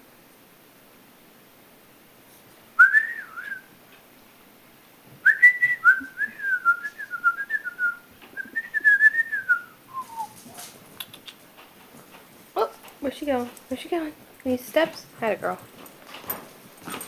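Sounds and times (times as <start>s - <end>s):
person whistling: 2.8s - 3.7s, 5.2s - 10.4s.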